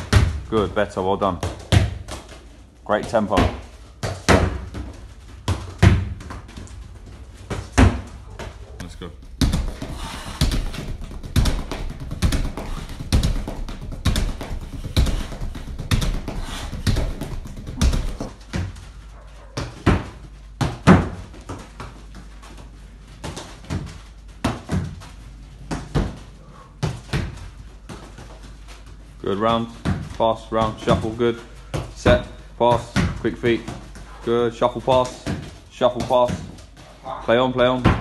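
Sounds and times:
footsteps on artificial turf: 0.0 - 38.0
football thumping rebounder board: 1.3 - 2.2, 3.3 - 6.4, 8.8 - 18.8, 19.6 - 21.3.

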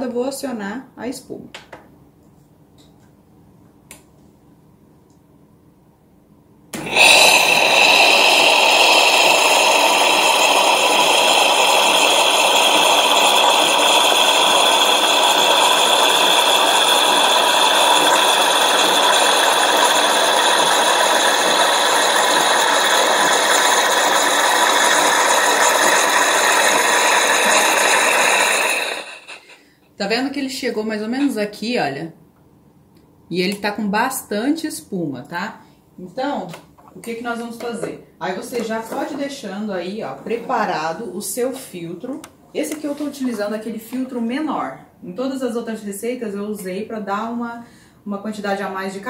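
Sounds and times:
milk frother hissing with high whine: 6.8 - 29.6.

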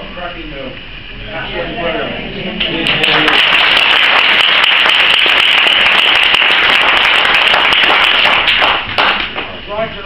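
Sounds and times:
audience applauding: 2.6 - 9.4.

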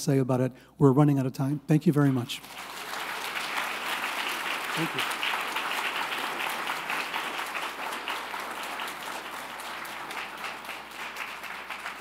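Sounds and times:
audience applause: 2.4 - 12.0.

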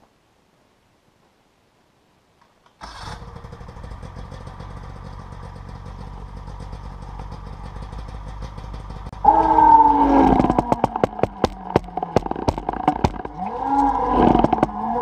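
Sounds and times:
snowmobile engine idling: 3.0 - 15.0.

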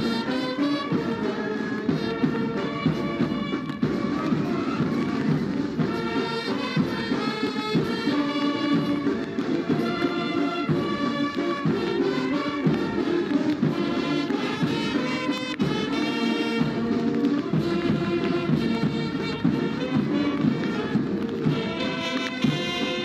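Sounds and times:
military band playing a march: 0.0 - 23.0.

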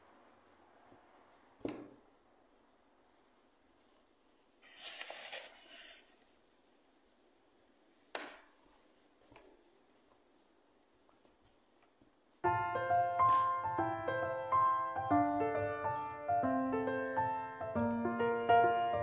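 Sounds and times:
dough rustling scrape: 4.6 - 6.5.

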